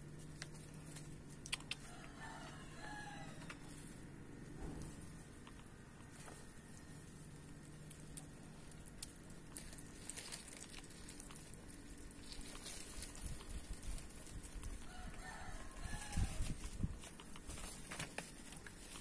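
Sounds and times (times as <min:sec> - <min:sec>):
rooster crowing: 0:01.8 - 0:03.7, 0:14.8 - 0:16.5.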